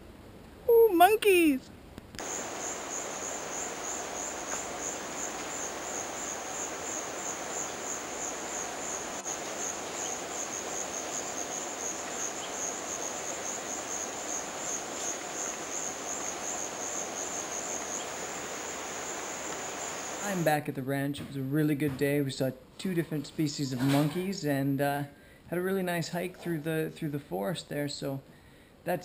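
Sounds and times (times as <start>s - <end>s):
faint background hiss: 0.0s - 29.0s
insects trilling: 2.2s - 20.4s.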